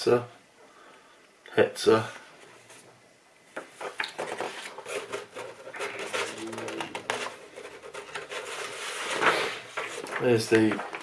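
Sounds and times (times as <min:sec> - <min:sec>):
paper leaflets rustling: 0:03.8 - 0:11.0.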